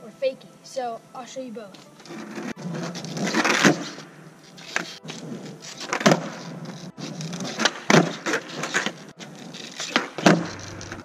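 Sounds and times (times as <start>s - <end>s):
skateboard wheels rolling on concrete: 1.2s - 11.0s
skateboard deck clacks: 4.6s - 11.0s.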